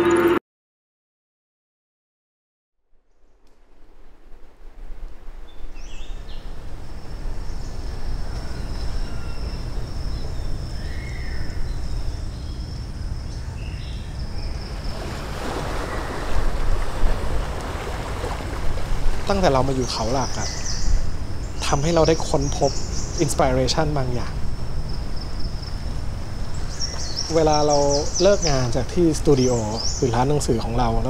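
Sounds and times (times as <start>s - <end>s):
high-pitched whine: 0.0s - 0.4s
wind on microphone: 3.7s - 29.1s
sea surf washing ashore: 14.4s - 31.0s.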